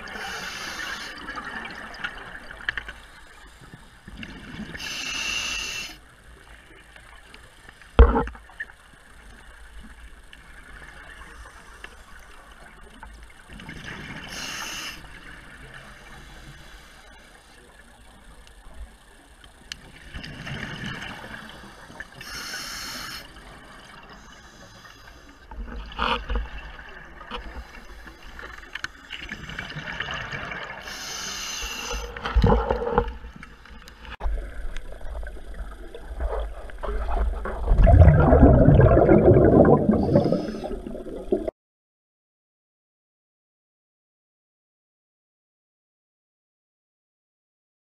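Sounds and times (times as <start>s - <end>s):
regulator inhale hiss: 0.1s - 1.4s, 4.7s - 6.1s, 14.2s - 15.3s, 16.0s - 17.3s, 21.2s - 23.4s, 24.1s - 25.5s, 30.8s - 32.3s, 39.9s - 41.0s
exhaled bubbles gurgling: 34.2s - 41.5s.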